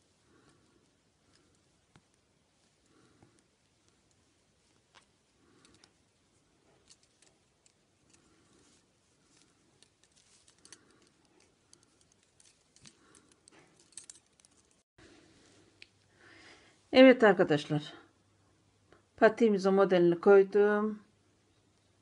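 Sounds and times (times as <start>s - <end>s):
metal knitting needles clicking: 4.8s - 6.0s, 6.7s - 8.4s, 9.3s - 14.8s.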